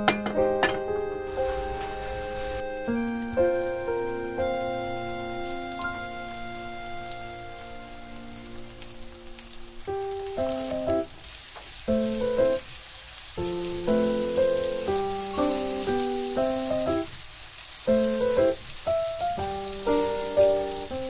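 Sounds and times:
light melodic music: 0:00.0 - 0:11.2, 0:11.9 - 0:12.7, 0:13.4 - 0:17.1, 0:17.8 - 0:21.0
food sizzling in a pan: 0:00.0 - 0:21.0.

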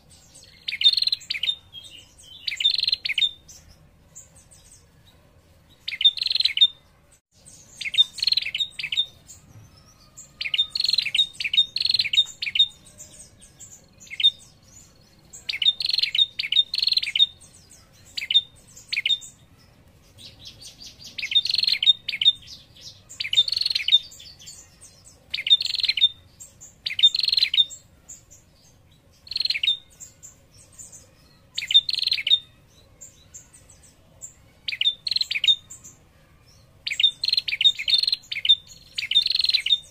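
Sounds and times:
bird ticking trill call: 0:00.5 - 0:03.5, 0:05.9 - 0:06.8, 0:07.7 - 0:13.4, 0:15.4 - 0:17.4, 0:20.4 - 0:22.6, 0:23.2 - 0:24.3, 0:25.4 - 0:26.2, 0:26.8 - 0:27.8, 0:29.2 - 0:30.2, 0:31.6 - 0:32.5, 0:34.7 - 0:35.9, 0:36.8 - 0:39.9.

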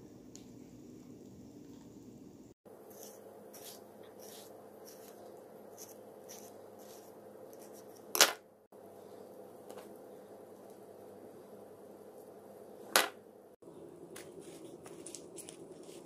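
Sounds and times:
knife scraping on cutting board: 0:02.8 - 0:05.2, 0:05.8 - 0:08.0.

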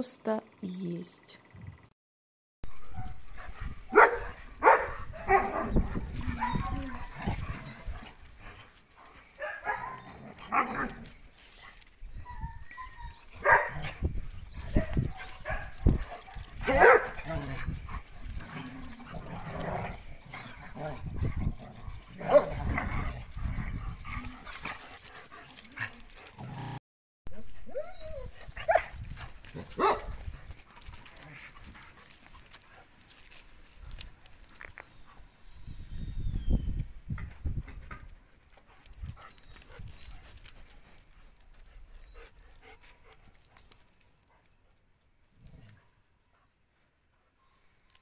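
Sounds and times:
dogs scuffing and clicking: 0:02.7 - 0:26.8, 0:28.4 - 0:44.8
dog yips and barks: 0:03.9 - 0:07.0, 0:12.2 - 0:13.9, 0:16.6 - 0:17.1
dog yelping: 0:03.9 - 0:07.2.

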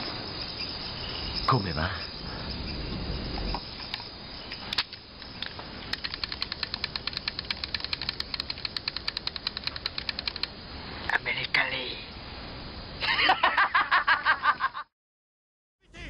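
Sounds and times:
rapid even ticking: 0:05.9 - 0:10.6.

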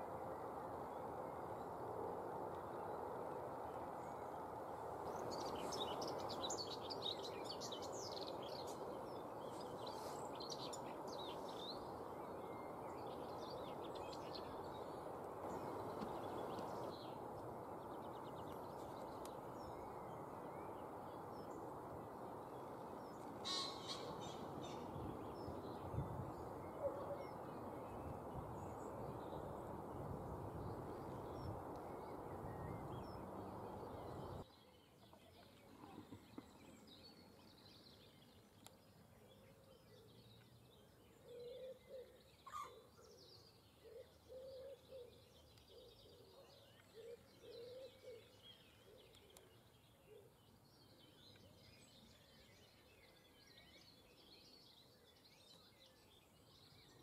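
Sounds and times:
outdoor background noise: 0:00.0 - 0:57.0
sharp loud bird call: 0:23.4 - 0:24.2.

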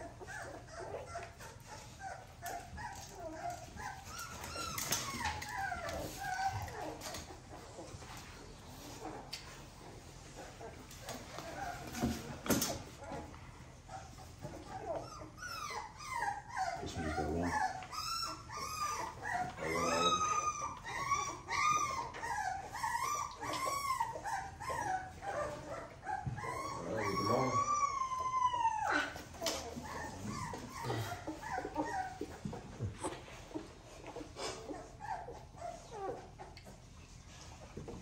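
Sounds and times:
puppy whining and crying: 0:00.0 - 0:38.0.

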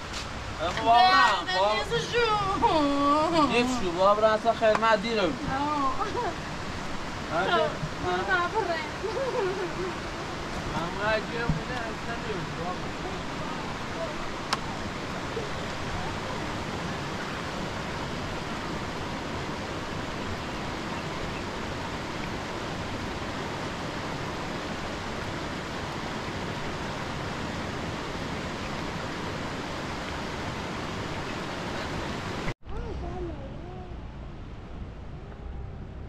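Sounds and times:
rushing water: 0:00.0 - 0:36.0
low rumble: 0:32.6 - 0:36.0.

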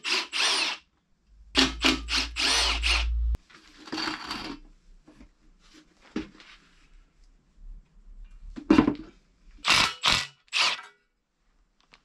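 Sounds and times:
cordless drill spinning: 0:00.0 - 0:00.8, 0:01.6 - 0:03.2, 0:09.6 - 0:10.8.

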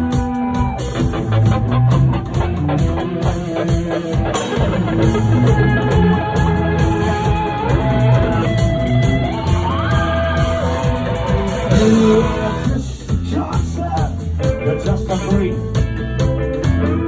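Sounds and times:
drums: 0:00.0 - 0:17.0
electric guitars: 0:00.0 - 0:17.0
person singing: 0:11.6 - 0:15.8.

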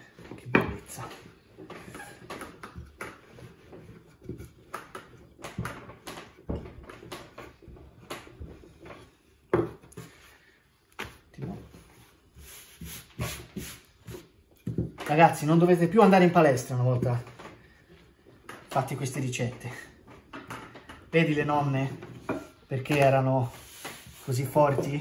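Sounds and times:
rolling pin rolling dough: 0:00.0 - 0:25.0
rolling pin knocking on wood table: 0:01.8 - 0:08.6, 0:09.5 - 0:10.0.

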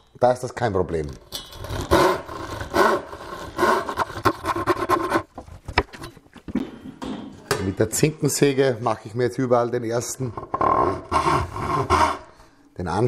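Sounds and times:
frame saw rasping through wood: 0:01.9 - 0:05.3, 0:10.8 - 0:12.4.

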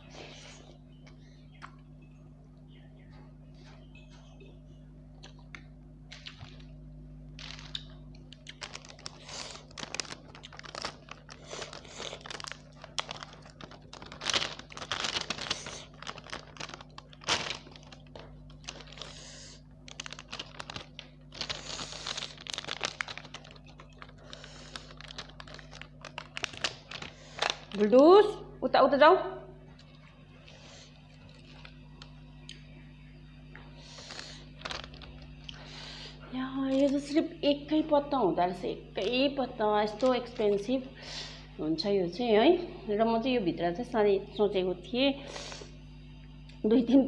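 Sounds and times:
plastic packet crinkling: 0:07.4 - 0:28.0, 0:34.0 - 0:35.6, 0:39.8 - 0:40.9.

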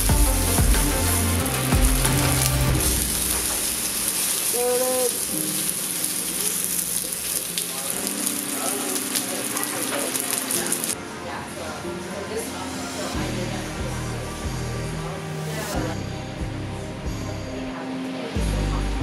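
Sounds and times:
steak sizzling in a frying pan: 0:02.8 - 0:11.0.

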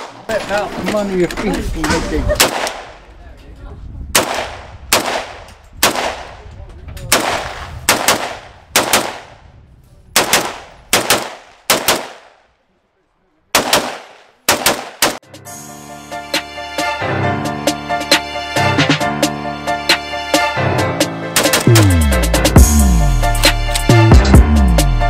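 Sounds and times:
rifle shots echoing: 0:02.3 - 0:03.0, 0:04.2 - 0:06.5, 0:07.1 - 0:09.4, 0:10.2 - 0:12.6, 0:13.5 - 0:15.2
music: 0:15.2 - 0:25.0.

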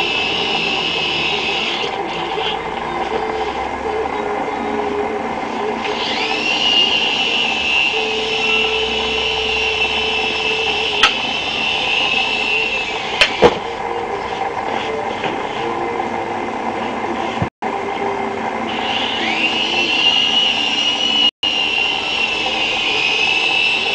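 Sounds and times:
rc helicopter motor whine: 0:00.0 - 0:04.2, 0:05.6 - 0:13.2, 0:18.0 - 0:23.9.

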